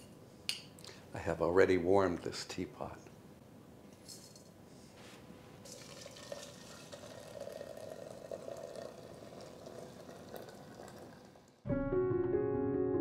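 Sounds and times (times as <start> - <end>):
water pouring into teapot: 5.6 - 11.6.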